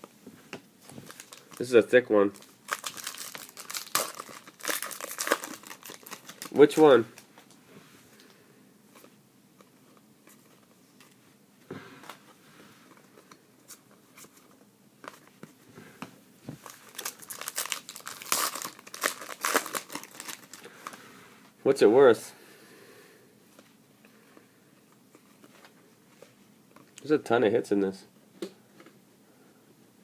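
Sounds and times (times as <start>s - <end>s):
foil wrapper crinkling and tearing: 1.1s - 1.7s, 2.3s - 7.0s, 16.6s - 21.0s.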